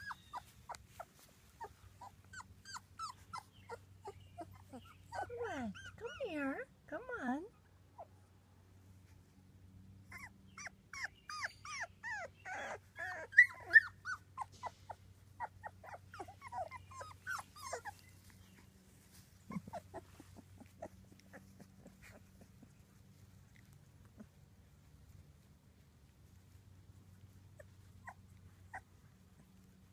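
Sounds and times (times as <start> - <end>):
puppies squeaking and whimpering: 0.0 - 6.2, 10.1 - 24.5, 26.5 - 29.7.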